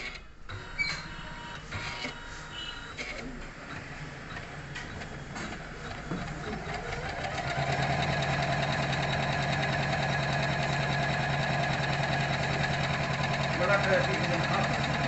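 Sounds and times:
embroidery machine stitching: 3.0 - 15.0.

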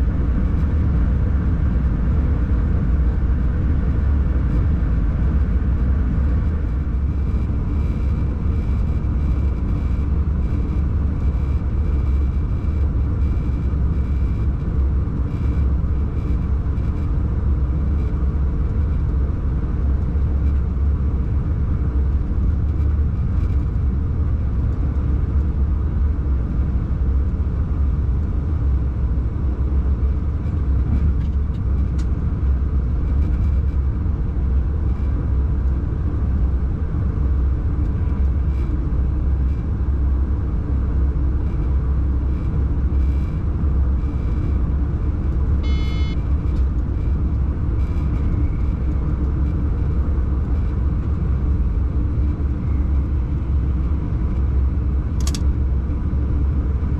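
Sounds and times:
train cab low rumble: 0.0 - 56.9
high beep: 45.6 - 46.2.

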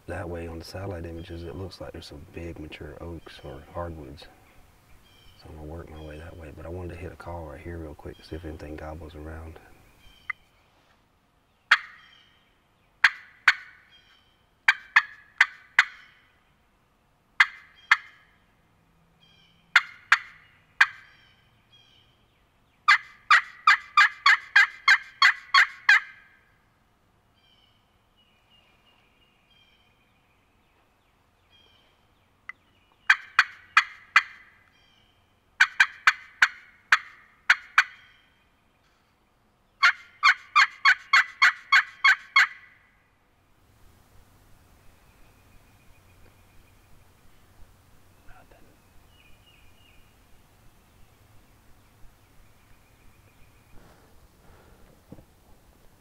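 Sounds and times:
turkey call clucks and yelps: 11.7 - 12.2, 13.0 - 13.9, 14.7 - 16.2, 17.4 - 18.3, 19.7 - 21.2, 22.9 - 26.4, 33.1 - 34.6, 35.6 - 38.2, 39.8 - 42.8.

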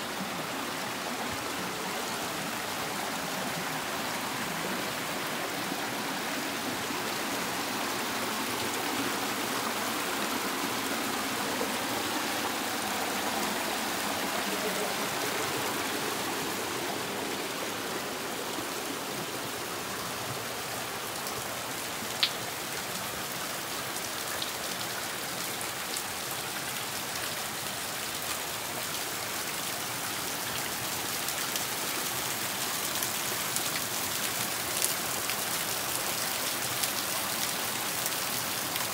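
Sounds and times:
stream running over rocks: 0.0 - 38.9
water trickling and dripping: 21.2 - 23.0.

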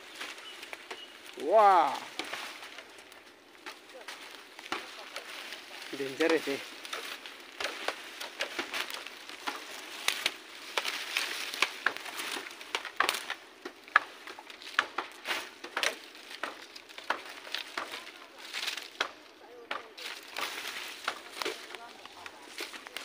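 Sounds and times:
dry branches crackling and snapping: 0.0 - 23.0.

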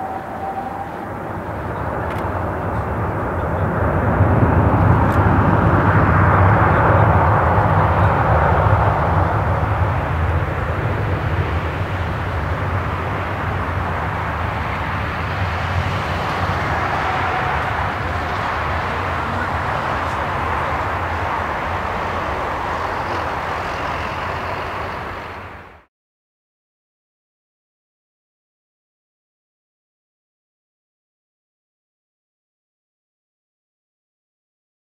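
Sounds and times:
jet engine roar: 0.0 - 25.8.

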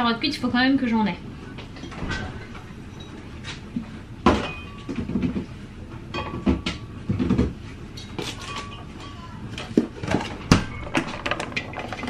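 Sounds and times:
food containers clattering: 6.3 - 12.0.

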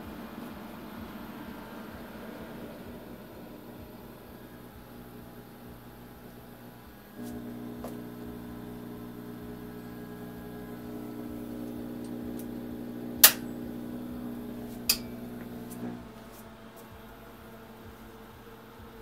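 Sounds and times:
sharp clicks: 13.2 - 13.5.

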